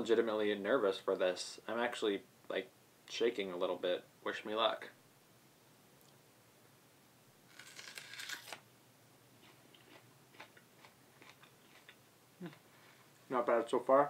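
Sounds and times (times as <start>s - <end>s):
teeth biting into raw onion: 7.5s - 8.6s, 9.4s - 12.6s
faint chewing clicks: 9.4s - 12.6s.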